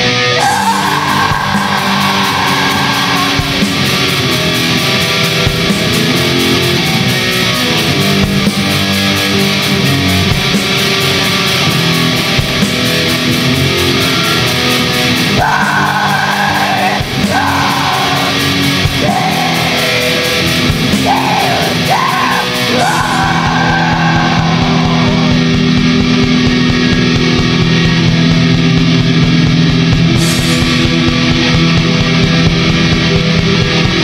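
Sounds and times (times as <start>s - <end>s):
distorted electric guitars: 0.0s - 34.0s
drums: 0.0s - 34.0s
shrieked vocals: 0.2s - 4.4s, 13.7s - 25.5s.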